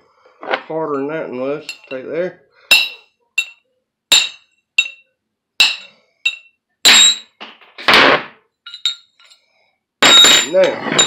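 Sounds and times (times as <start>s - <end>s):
metal part clattering: 1.7s - 2.0s, 2.7s - 5.0s, 5.6s - 7.4s, 8.7s - 9.4s, 10.0s - 11.0s
hammer striking metal: 2.7s - 5.0s, 5.6s - 7.3s.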